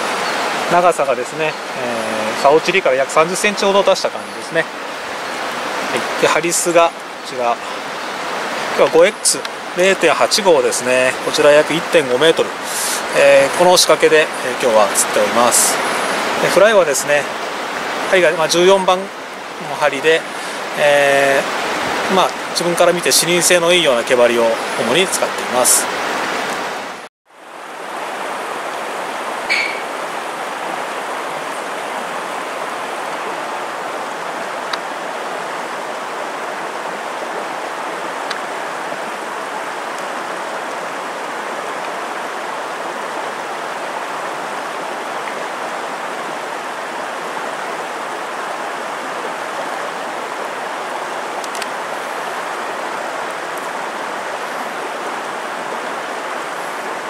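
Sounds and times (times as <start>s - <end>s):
flowing river water: 0.0s - 57.0s
short sharp sound: 29.5s - 29.9s.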